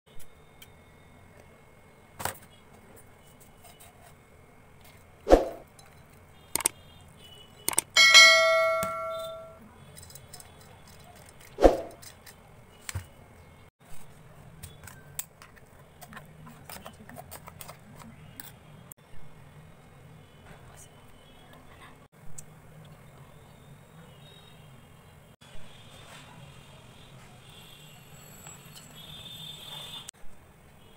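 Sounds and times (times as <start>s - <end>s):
metallic bell-like ding: 8.0s - 9.6s.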